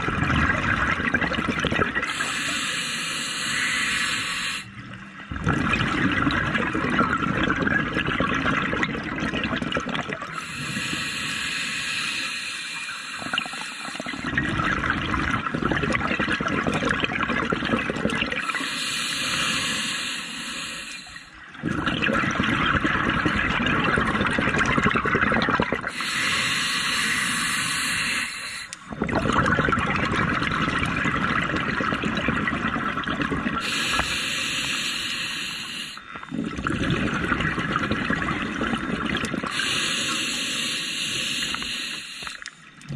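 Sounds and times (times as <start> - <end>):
bubbling exhalations underwater: 0.0 - 2.2, 5.3 - 10.4, 13.2 - 18.6, 21.6 - 26.1, 28.8 - 34.1, 36.1 - 39.7
regulator hissing inhalations: 2.1 - 4.7, 10.4 - 14.2, 18.4 - 21.4, 25.9 - 28.9, 33.6 - 36.1, 39.5 - 42.5.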